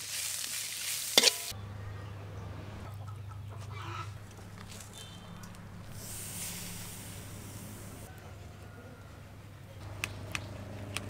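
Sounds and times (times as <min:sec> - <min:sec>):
food sizzling in a wok: 0:00.0 - 0:01.5, 0:06.0 - 0:07.8
steady low hum: 0:01.4 - 0:11.0
chickens calling: 0:01.5 - 0:11.0.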